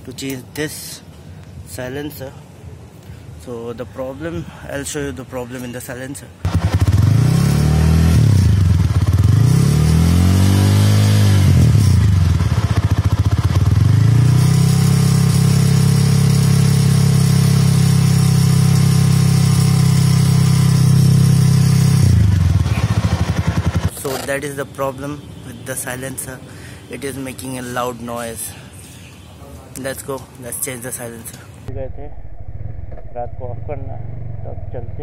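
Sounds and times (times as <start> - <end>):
motorcycle engine revving and idling: 6.5 - 23.9.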